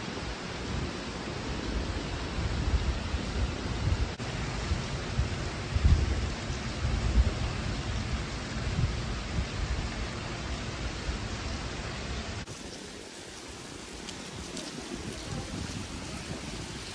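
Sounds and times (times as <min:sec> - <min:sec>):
wind on microphone: 0:00.0 - 0:12.8, 0:13.8 - 0:16.9
heavy rain hiss: 0:00.0 - 0:16.9.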